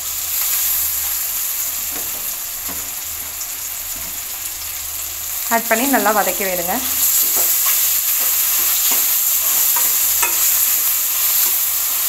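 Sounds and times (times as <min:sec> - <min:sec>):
vegetables sizzling in oil: 0:00.0 - 0:12.0
metal spoon scraping pan: 0:07.1 - 0:11.6.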